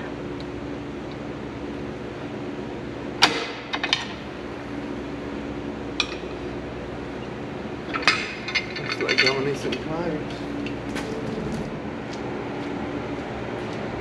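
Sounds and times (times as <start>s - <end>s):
steady low hum: 0.0s - 14.0s
metal clinks and knocks: 7.9s - 11.6s.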